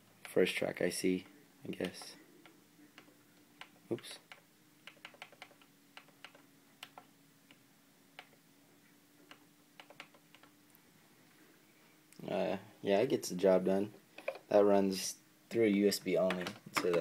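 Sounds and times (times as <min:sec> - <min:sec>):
faint steady hum: 0:00.0 - 0:17.0
keyboard and mouse clicks: 0:01.8 - 0:07.6, 0:08.2 - 0:08.4, 0:09.3 - 0:10.6, 0:16.2 - 0:17.0.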